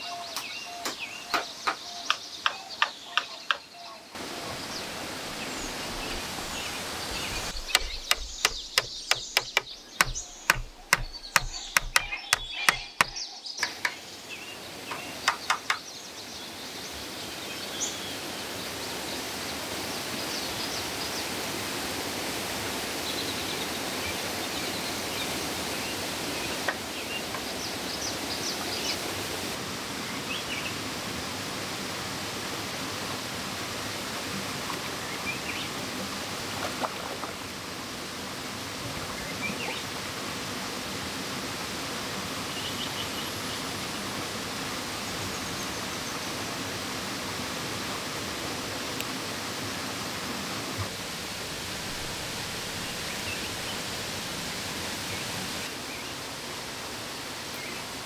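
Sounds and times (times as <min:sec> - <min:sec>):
outdoor hiss: 0:00.0 - 0:36.6, 0:37.4 - 0:58.0
high bird chirps: 0:07.3 - 0:13.8
sharp knocks on bamboo: 0:07.5 - 0:14.0, 0:15.2 - 0:15.8.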